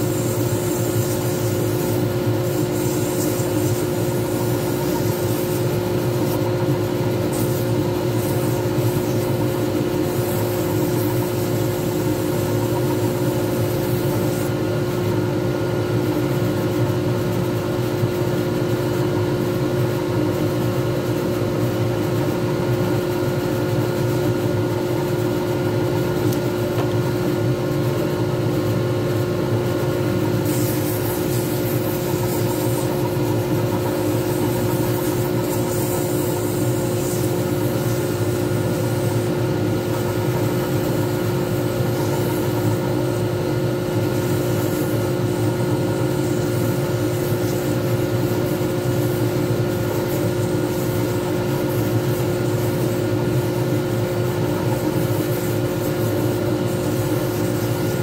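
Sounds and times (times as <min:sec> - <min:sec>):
abrasive pad hissing on spinning wood: 0:00.0 - 0:14.6, 0:30.2 - 0:58.0.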